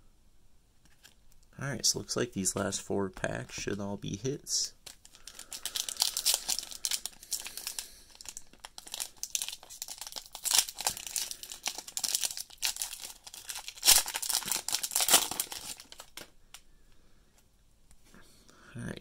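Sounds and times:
foil wrapper crinkling and tearing: 4.8s - 16.4s.

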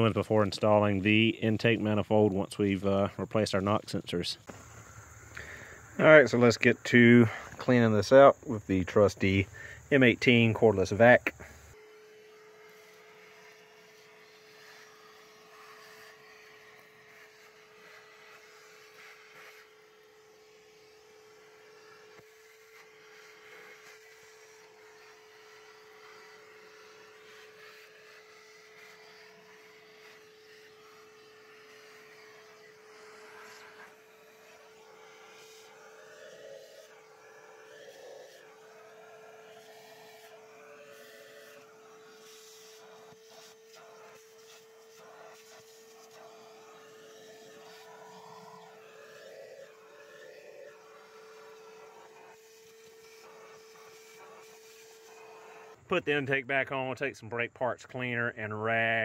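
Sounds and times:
vacuum nozzle sucking debris: 0.0s - 11.8s, 21.9s - 56.2s
shop vacuum motor whine: 0.0s - 55.9s.

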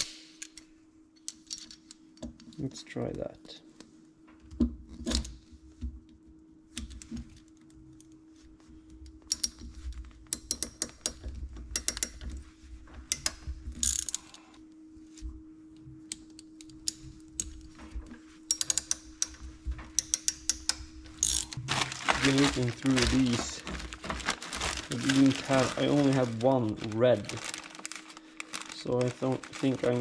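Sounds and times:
steady hum: 0.0s - 30.0s
ratcheting crimping tool clicking: 18.5s - 19.4s, 20.0s - 21.4s.

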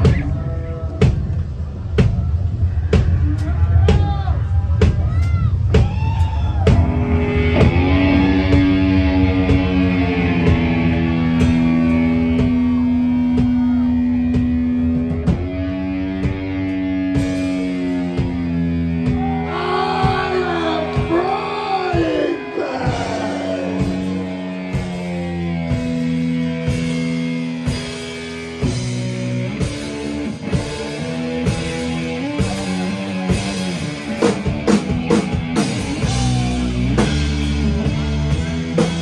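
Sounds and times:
distorted electric guitar: 6.6s - 39.0s
person singing: 19.4s - 24.4s.

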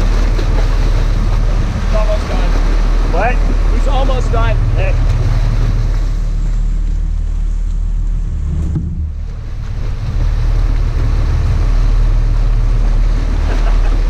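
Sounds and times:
boat engine humming: 0.0s - 14.0s
water rushing along hull: 0.0s - 14.0s.

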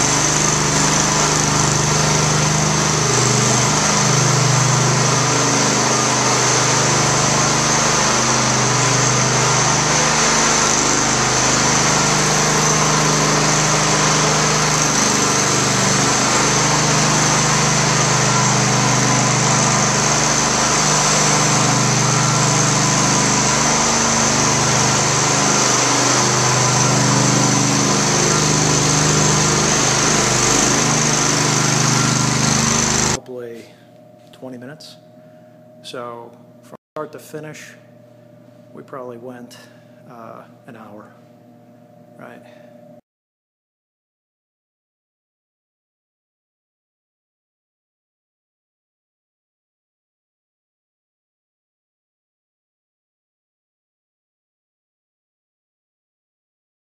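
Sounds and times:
floor burnisher engine running: 0.0s - 33.7s.

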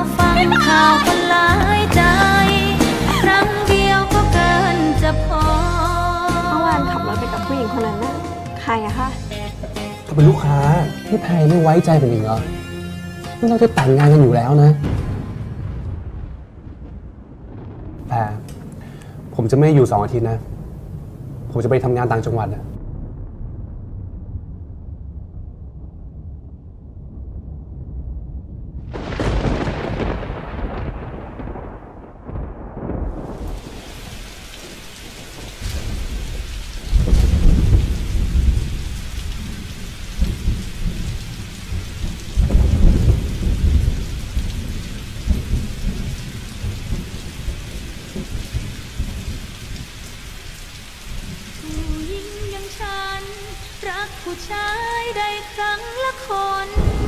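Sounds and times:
thunder rolls: 0.0s - 4.7s, 13.8s - 57.0s
rain downpour: 0.0s - 12.7s, 13.3s - 23.5s, 28.8s - 57.0s
melody: 6.4s - 14.9s
low rumble: 22.4s - 34.6s.

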